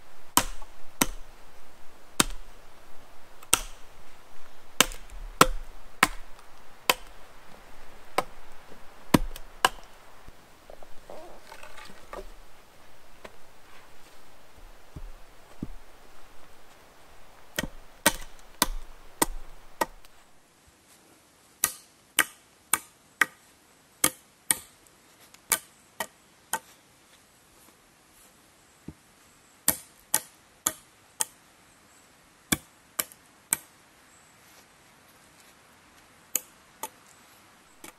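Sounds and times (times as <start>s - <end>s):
hand tool striking wood: 0.4s - 1.3s, 2.2s - 2.4s, 3.4s - 3.8s, 4.8s - 7.1s, 8.1s - 8.4s, 9.1s - 10.0s, 17.5s - 20.1s.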